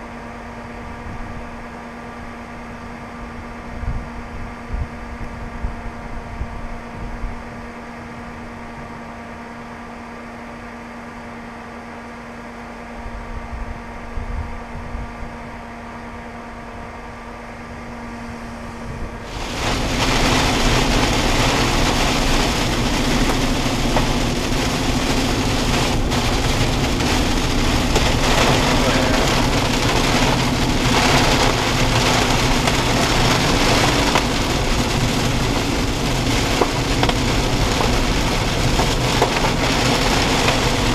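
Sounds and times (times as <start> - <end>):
vehicle idling hum: 5.5 - 40.9
heavy rain on car roof: 19.2 - 40.9.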